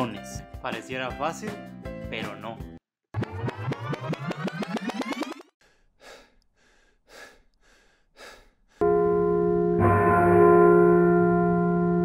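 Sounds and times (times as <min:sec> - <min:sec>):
man breathing hard: 0:05.6 - 0:08.8
sustained music chord: 0:08.8 - 0:12.0.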